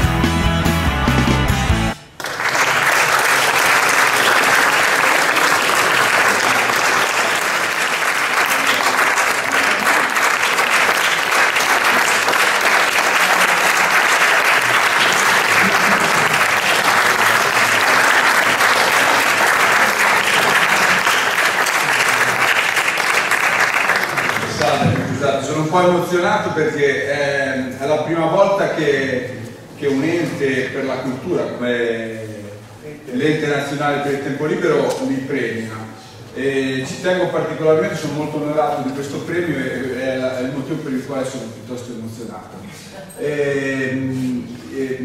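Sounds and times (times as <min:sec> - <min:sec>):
audience applauding: 0:02.1 - 0:25.1.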